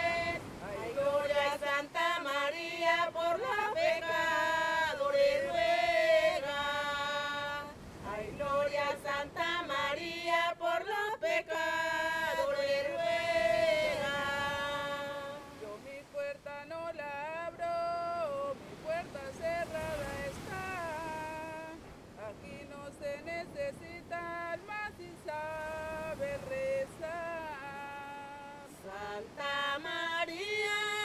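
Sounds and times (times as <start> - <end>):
unaccompanied voices chanting: 0.0 - 16.5, 24.6 - 31.0.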